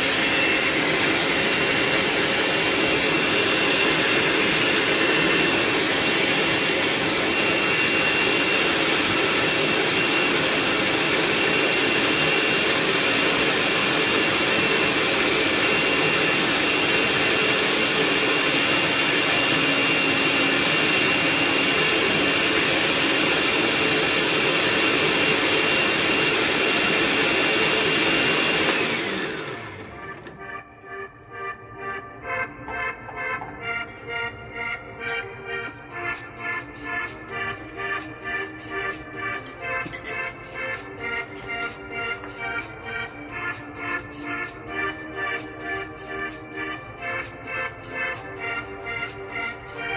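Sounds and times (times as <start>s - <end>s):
blender motor whining: 0.0s - 30.6s.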